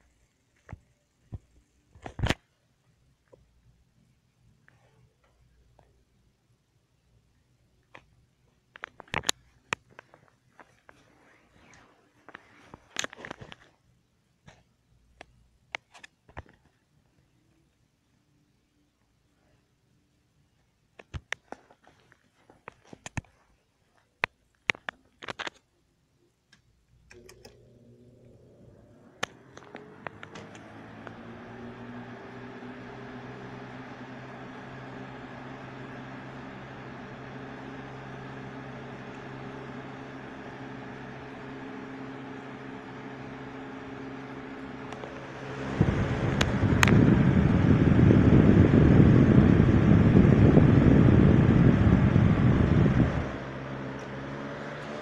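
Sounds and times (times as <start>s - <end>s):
fan motor hum: 26.5s - 55.0s.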